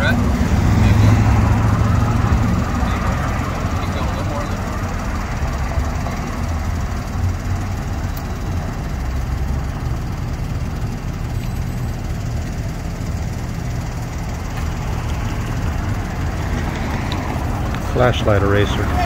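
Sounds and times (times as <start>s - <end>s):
road traffic and idling engines: 0.0s - 19.0s.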